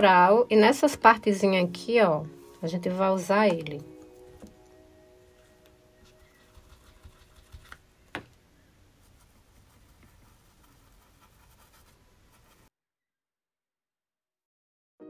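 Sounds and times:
stencil brush dabbing and scuffing: 6.0s - 7.8s, 9.0s - 12.7s.

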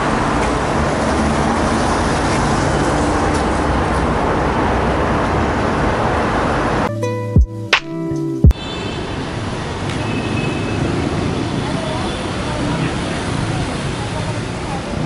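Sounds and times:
cars passing on wet road: 0.0s - 6.9s, 8.6s - 15.0s
music with sharp beats: 6.9s - 8.6s.

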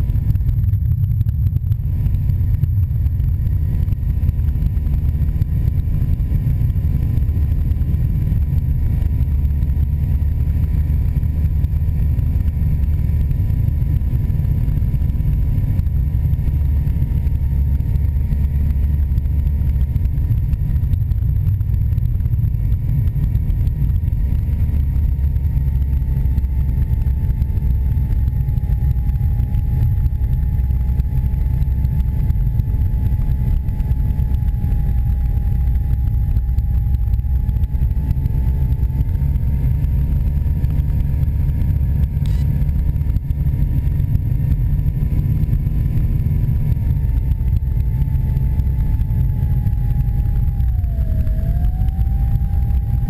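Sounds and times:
faint high whine: 0.0s - 53.0s
plane engine and propeller drone: 0.0s - 53.0s.

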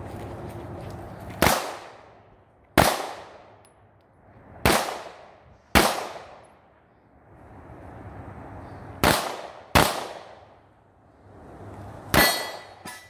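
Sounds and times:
pistol shots with echo: 2.8s - 3.5s, 4.6s - 6.5s, 9.0s - 10.4s.

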